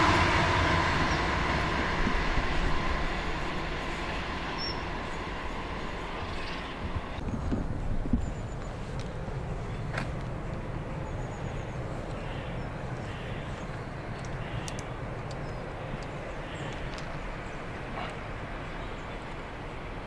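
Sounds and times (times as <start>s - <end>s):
train rumbling: 0.0s - 20.0s
faint clicks: 13.6s - 17.3s.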